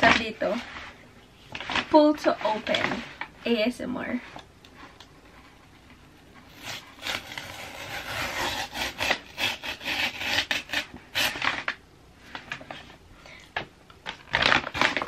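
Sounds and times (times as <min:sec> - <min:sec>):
cardboard tear strip ripping: 0:06.5 - 0:11.8, 0:14.2 - 0:15.0.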